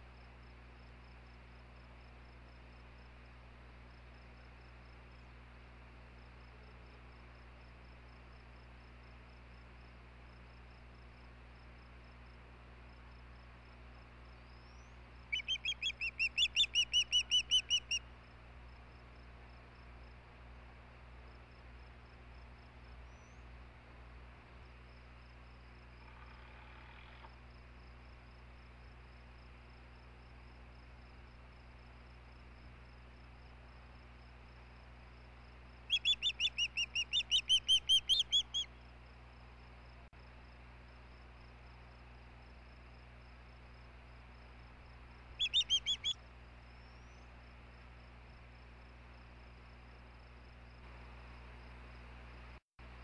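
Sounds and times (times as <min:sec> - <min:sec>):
osprey whistled chirps: 0:14.7 - 0:18.0, 0:35.9 - 0:38.7, 0:45.4 - 0:46.2.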